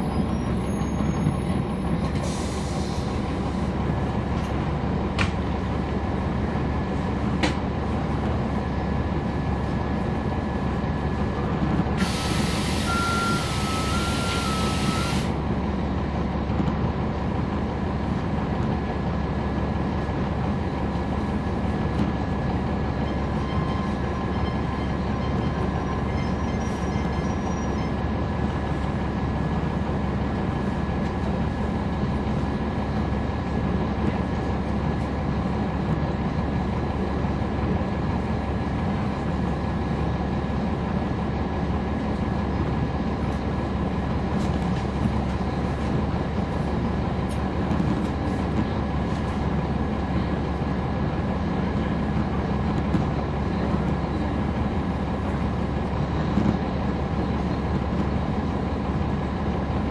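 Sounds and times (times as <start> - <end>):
bus diesel engine running: 0.0 - 59.9
loud air hiss: 12.0 - 15.4
thin steady whistle: 12.2 - 15.3.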